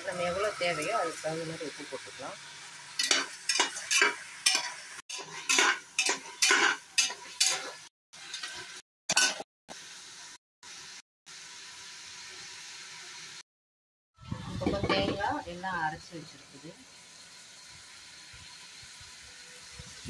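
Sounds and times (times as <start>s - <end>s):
oil sizzling: 0.0s - 13.4s, 14.2s - 20.0s
metal spatula scraping pot: 3.0s - 9.4s, 14.3s - 15.4s.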